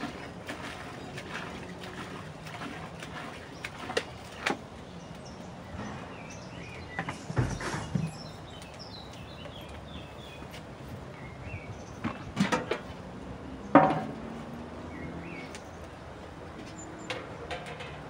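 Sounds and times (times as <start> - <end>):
water pouring into plastic bucket: 0.0 - 4.6
birds chirping: 0.0 - 18.0
can set down with thud: 13.8 - 14.2.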